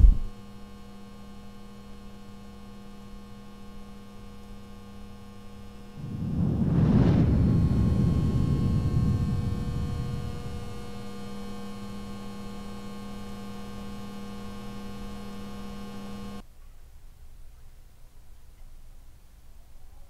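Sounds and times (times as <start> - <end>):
droning hum: 0.0 - 16.4
low rumble: 5.9 - 13.4.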